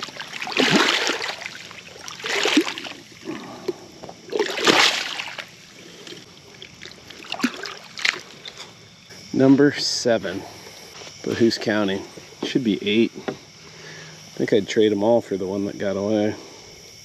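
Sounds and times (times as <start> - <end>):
splashing in shallow water: 0.0 - 8.6.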